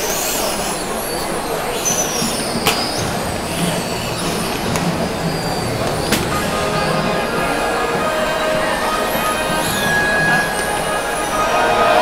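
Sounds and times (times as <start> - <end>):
crowd hubbub: 0.0 - 12.0
high whistles gliding downward: 0.0 - 12.0
sharp claps or knocks: 2.6 - 3.3.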